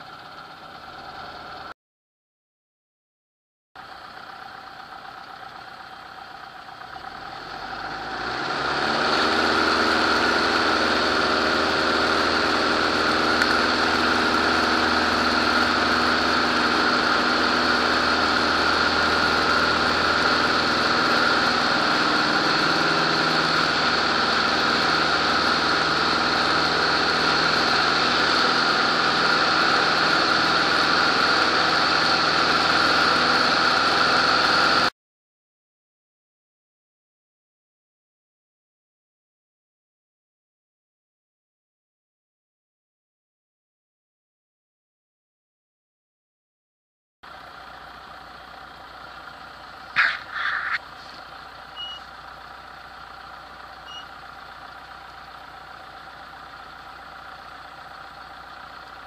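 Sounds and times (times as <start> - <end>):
aircraft piston engine and propeller: 7.8 - 34.9.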